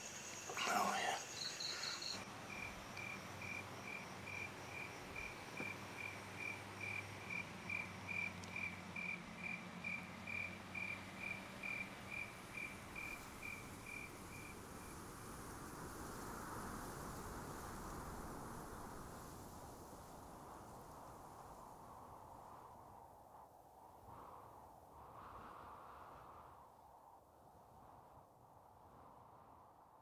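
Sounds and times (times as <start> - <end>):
cricket chirping: 0.0 - 18.6.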